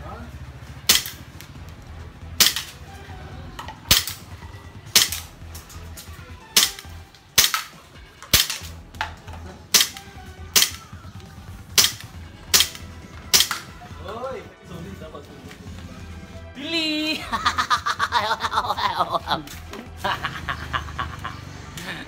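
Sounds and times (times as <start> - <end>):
airsoft pistol shots: 0.9 - 1.3, 2.4 - 2.8, 3.9 - 4.3, 4.9 - 5.3, 6.5 - 8.8, 9.7 - 11.0, 11.7 - 13.7.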